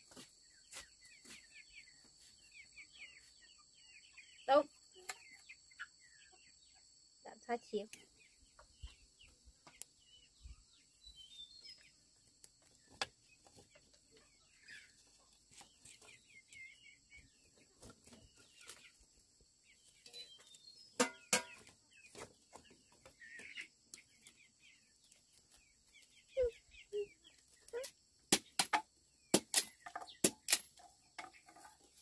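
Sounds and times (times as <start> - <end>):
chickens clucking: 0.0 - 32.0
faint high chirps: 25.9 - 27.9.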